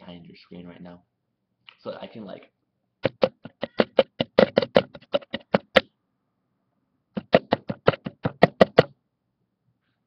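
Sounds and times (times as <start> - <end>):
rapid knocking on hard surface: 3.0 - 5.9, 7.2 - 9.0.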